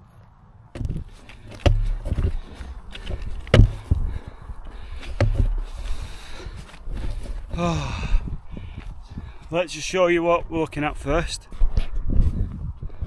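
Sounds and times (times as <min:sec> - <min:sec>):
wind rumbling on microphone: 0:00.7 - 0:13.0
trekking poles knocking on rock: 0:00.8 - 0:06.0
footsteps on rocky path: 0:00.8 - 0:13.0.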